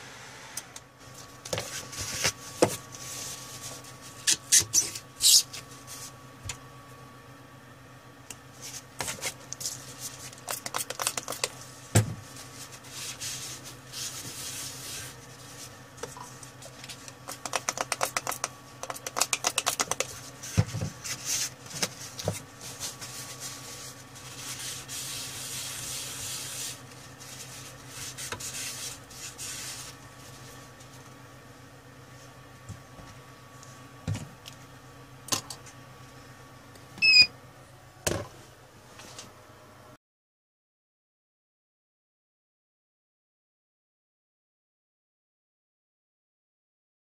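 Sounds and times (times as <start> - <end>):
tissue wiping circuit board: 16.5 - 30.9.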